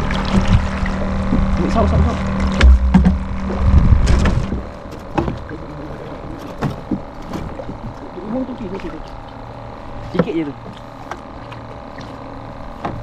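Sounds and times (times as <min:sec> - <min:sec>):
knocks and bumps on boat: 0:00.0 - 0:08.1, 0:10.0 - 0:13.0
low rumble: 0:00.0 - 0:08.2.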